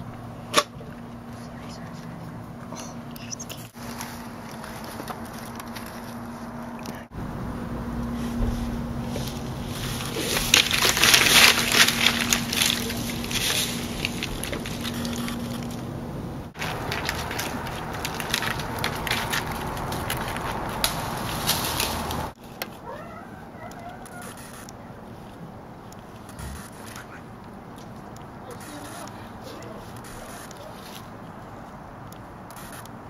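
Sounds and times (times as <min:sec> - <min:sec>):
low hum: 0:00.0 - 0:22.4
dry leaves crackling: 0:03.2 - 0:07.0, 0:07.8 - 0:31.8
claws scratching bark: 0:09.1 - 0:15.9, 0:16.6 - 0:33.0.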